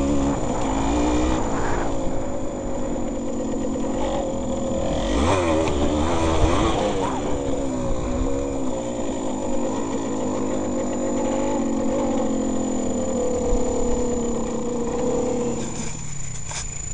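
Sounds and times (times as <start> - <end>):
wind rumbling on microphone: 0.0 - 9.2
two-stroke motorcycle engine: 0.0 - 16.9.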